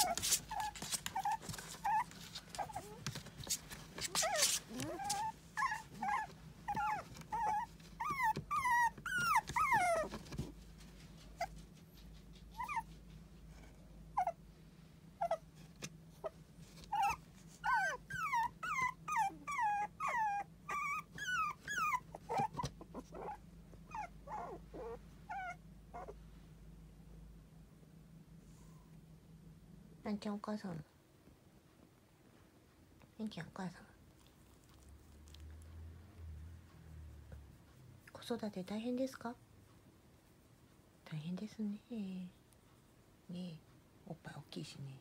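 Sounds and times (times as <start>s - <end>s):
puppies whining and whimpering: 0.0s - 3.1s, 4.0s - 10.2s, 12.6s - 13.0s, 14.2s - 14.4s, 15.2s - 15.4s, 16.9s - 26.2s.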